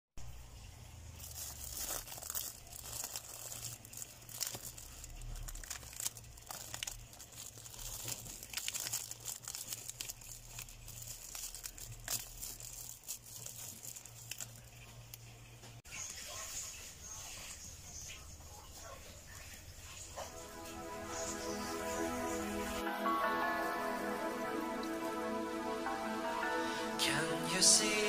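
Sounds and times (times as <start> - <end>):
plastic wrap crinkling: 1.1 - 15.6.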